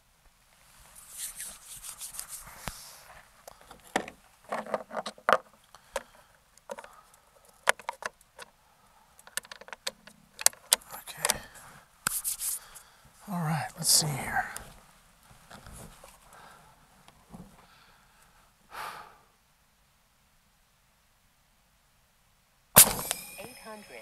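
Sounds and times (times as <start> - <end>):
short high hiss: 0.8 - 3.2, 12.0 - 12.9, 22.8 - 23.8
air rifle clicks and knocks: 3.7 - 6.9, 7.6 - 8.5, 9.3 - 11.4.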